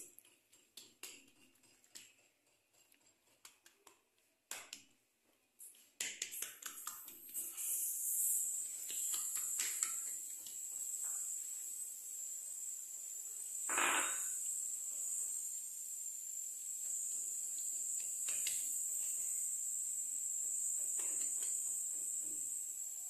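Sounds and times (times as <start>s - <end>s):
hands slapping dough: 0.0s - 5.0s, 5.8s - 7.5s, 8.8s - 10.9s
wet smearing of dough: 0.1s - 11.9s.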